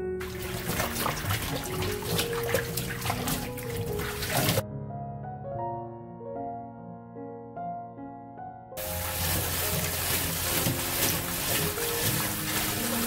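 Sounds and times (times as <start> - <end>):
soft piano music: 0.0 - 13.0
water splashing in metal bowl: 0.2 - 4.6, 8.8 - 13.0.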